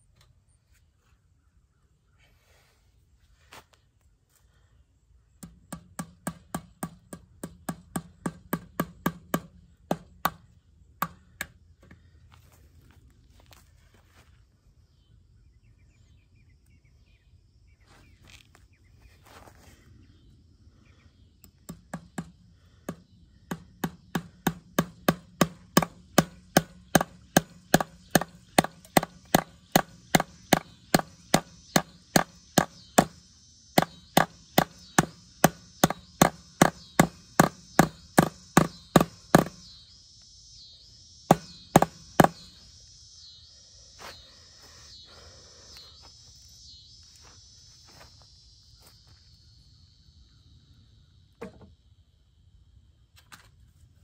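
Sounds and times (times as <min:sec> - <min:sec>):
insects chirring: 0:03.4 - 0:54.0
hammer blows on staples: 0:05.4 - 0:11.6, 0:21.5 - 0:39.7, 0:41.3 - 0:42.5.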